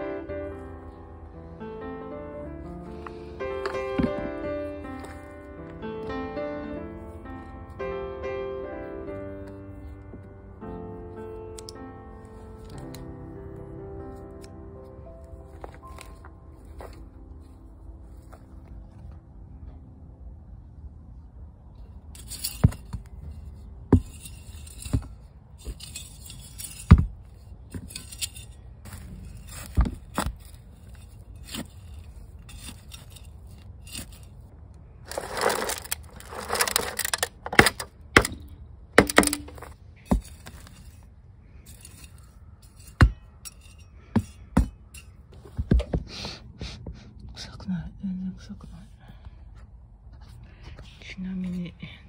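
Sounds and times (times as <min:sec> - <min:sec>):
trowel scraping gritty soil: 0:04.7 - 0:05.4, 0:22.2 - 0:38.3, 0:39.1 - 0:45.3
scraps tipped from foil tray: 0:35.1 - 0:37.7.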